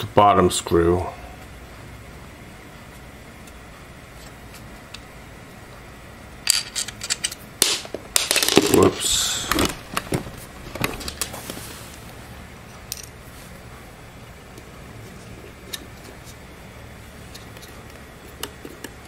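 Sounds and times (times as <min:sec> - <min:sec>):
small screw dropping on floor: 0:06.5 - 0:08.9.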